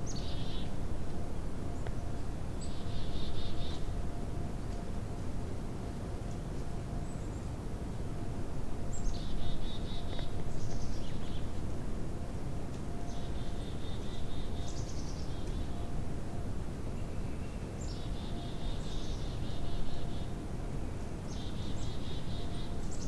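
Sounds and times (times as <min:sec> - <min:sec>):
songbird singing trills: 0:00.0 - 0:04.8, 0:08.8 - 0:11.6, 0:12.9 - 0:23.0
low outdoor rumble: 0:00.0 - 0:23.0.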